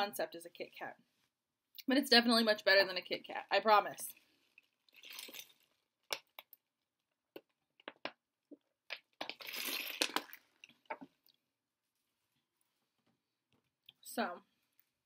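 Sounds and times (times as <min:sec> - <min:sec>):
plastic water bottle crackling: 0:09.0 - 0:11.1.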